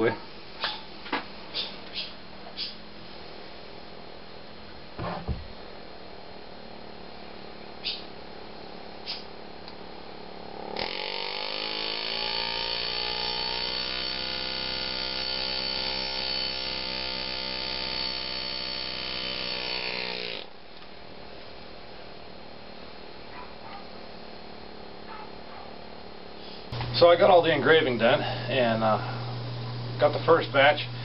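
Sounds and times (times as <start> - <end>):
air engraver buzzing into steel: 10.8 - 20.5, 27.8 - 31.0.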